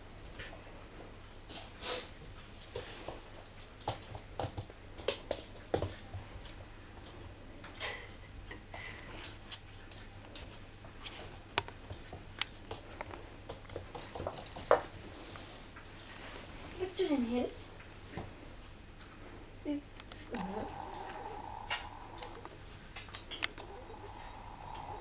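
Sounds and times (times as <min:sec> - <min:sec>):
puppy claws clicking on floor: 0:09.2 - 0:14.9.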